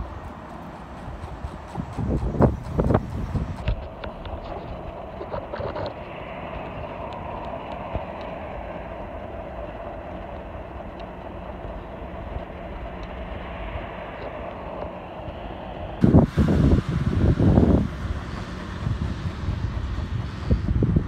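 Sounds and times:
bicycle tyres rolling on pavement: 0:00.0 - 0:21.0
faint ticks: 0:03.6 - 0:15.4.

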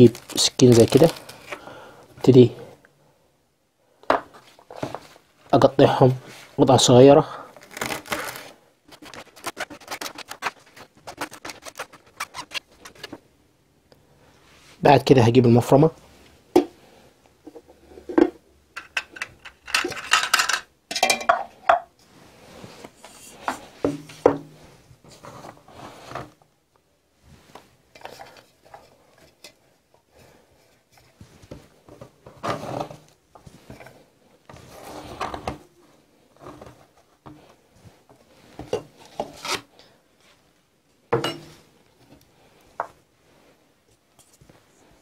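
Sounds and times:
leaves rustling and scraping: 0:00.0 - 0:01.5, 0:07.6 - 0:13.2.

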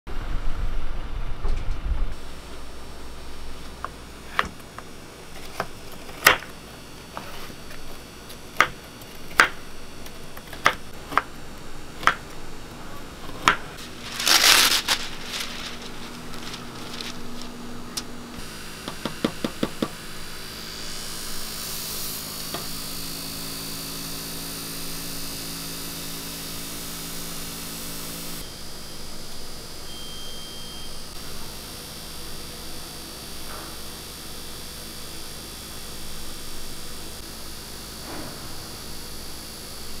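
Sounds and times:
electric motor hum: 0:02.1 - 0:40.0
knife chopping on wooden board: 0:08.6 - 0:09.6, 0:10.4 - 0:11.3.

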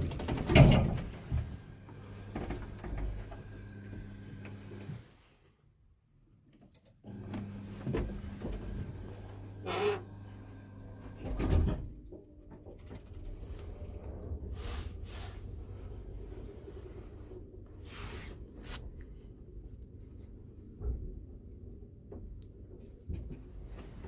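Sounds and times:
knocks and rattles: 0:00.0 - 0:01.6.

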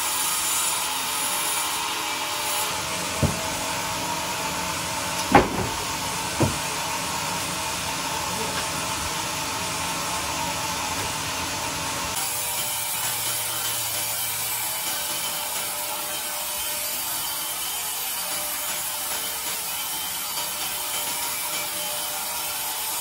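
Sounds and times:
sharp knocks: 0:03.2 - 0:03.6, 0:05.2 - 0:06.7.

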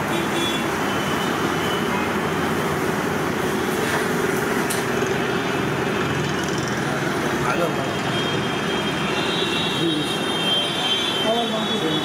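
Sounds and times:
busy kitchen din: 0:00.0 - 0:12.0.

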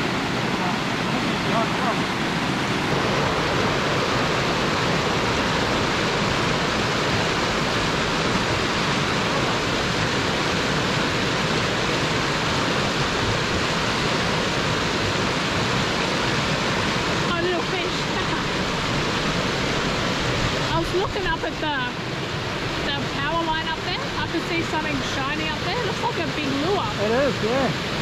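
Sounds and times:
white water rushing over rocks: 0:00.0 - 0:28.0.

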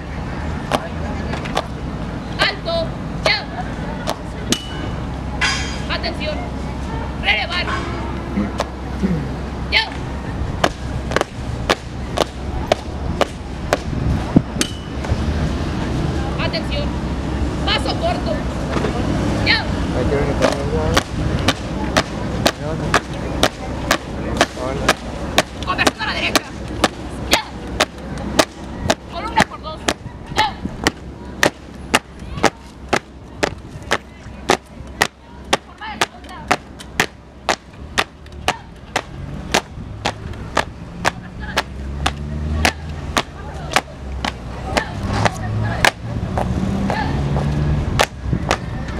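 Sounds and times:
marching footsteps on concrete: 0:09.9 - 0:15.3, 0:20.4 - 0:48.9.

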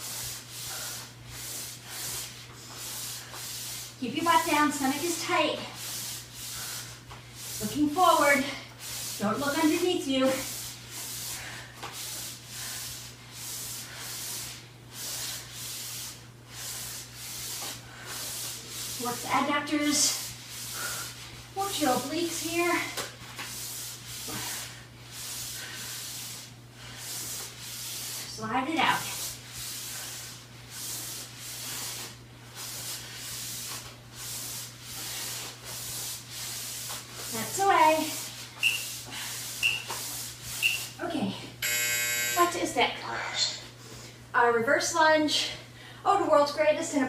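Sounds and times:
sliders swishing across carpet: 0:30.7 - 0:41.0.

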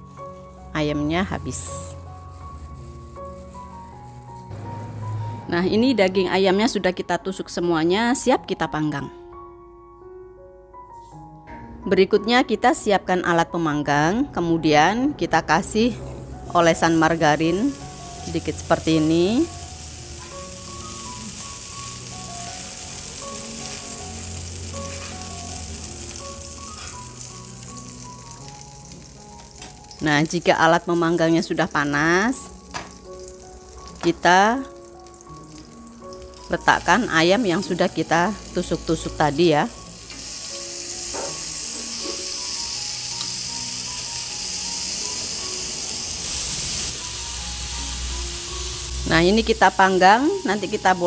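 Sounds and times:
margarine sizzling in a pan: 0:00.0 - 0:04.6, 0:16.2 - 0:51.0
quiet background music: 0:00.0 - 0:51.0.

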